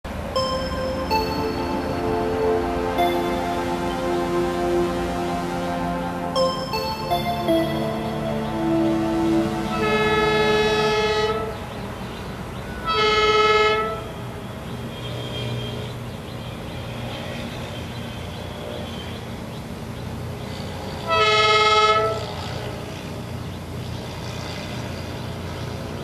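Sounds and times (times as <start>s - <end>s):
low train rumble: 0.1s - 14.7s
diesel train horn blasts: 0.4s - 11.7s, 21.0s - 22.4s.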